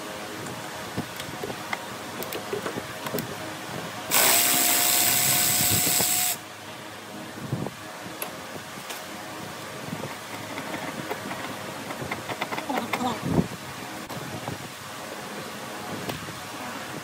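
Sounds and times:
power tool spinning: 4.1s - 6.4s
tools clicking and knocking: 10.1s - 13.2s.

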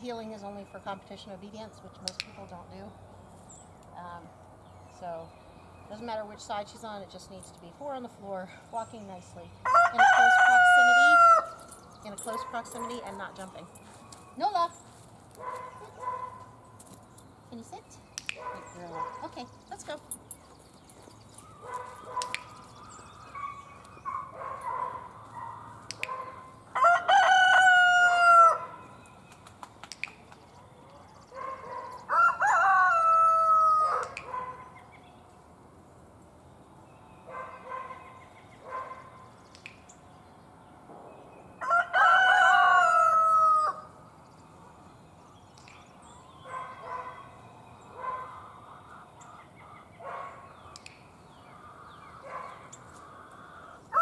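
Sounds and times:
rooster crowing: 9.6s - 11.6s, 26.7s - 28.8s, 32.0s - 34.2s, 41.6s - 43.9s, 53.5s - 54.0s
chicken calls: 51.6s - 54.0s.

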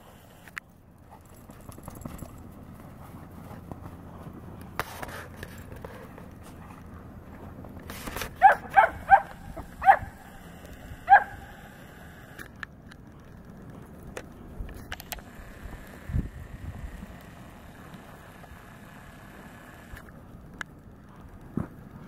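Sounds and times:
dog barking: 8.4s - 10.2s, 11.0s - 11.5s.

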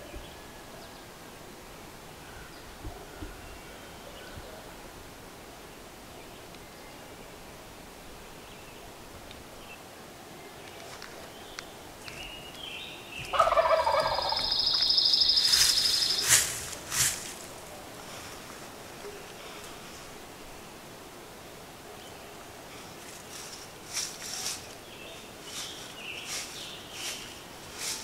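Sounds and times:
wild turkey gobbling: 13.3s - 16.4s.

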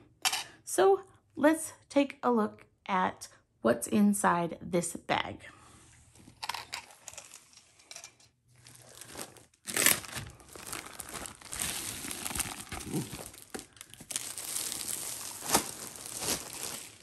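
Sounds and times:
plastic sleeve crinkling: 8.6s - 17.0s.

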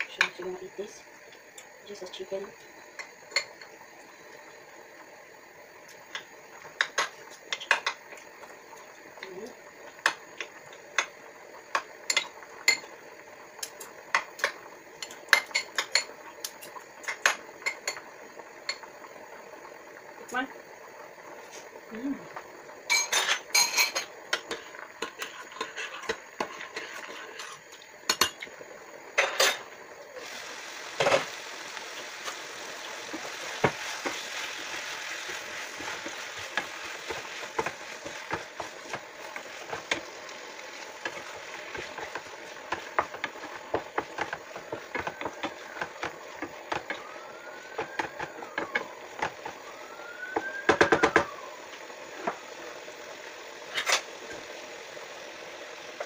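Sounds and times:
food sizzling in a frying pan: 0.0s - 56.0s.

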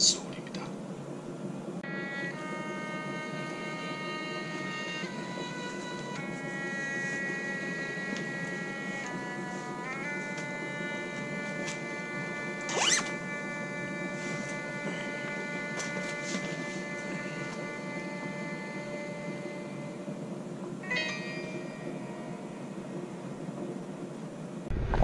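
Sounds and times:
background music with held notes: 1.8s - 24.7s
jacket zipper pulled up: 12.7s - 13.1s.

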